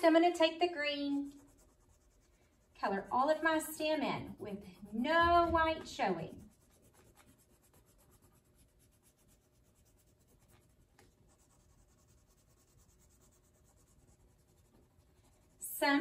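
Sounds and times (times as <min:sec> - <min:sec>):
crayon scratching on paper: 0:00.0 - 0:16.0.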